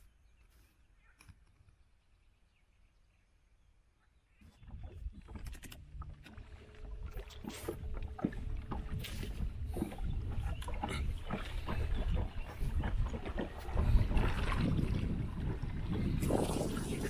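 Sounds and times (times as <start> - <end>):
water lapping against boat hull: 4.4 - 17.0.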